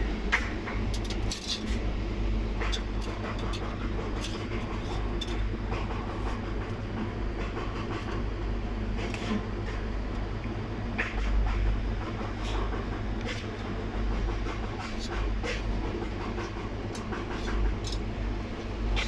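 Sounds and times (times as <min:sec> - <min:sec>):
steady low hum: 0:00.0 - 0:19.0
metal skewers clicking on grill: 0:00.9 - 0:01.7.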